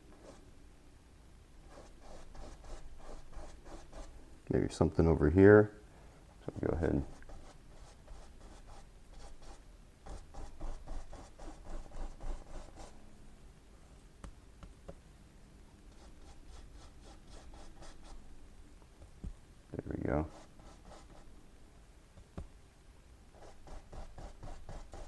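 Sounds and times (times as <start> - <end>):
paintbrush scratching on canvas: 1.7 - 4.1, 6.6 - 13.0, 15.9 - 18.2, 20.2 - 21.3, 23.4 - 25.0.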